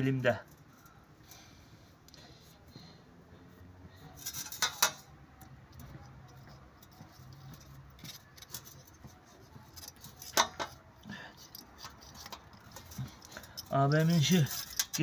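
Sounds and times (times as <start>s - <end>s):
wire scratching in metal port: 4.2s - 5.2s, 6.3s - 15.0s.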